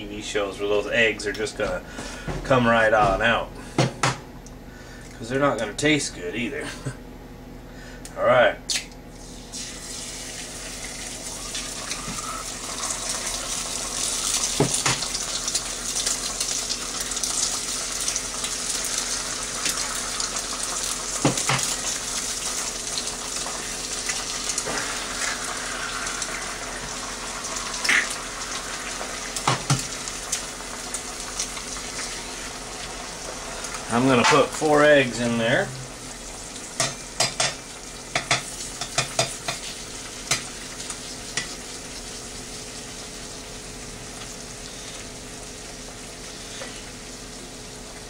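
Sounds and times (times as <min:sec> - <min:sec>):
eggs sizzling in butter: 0:09.2 - 0:48.0
eggs cracked against pan: 0:27.8 - 0:28.2.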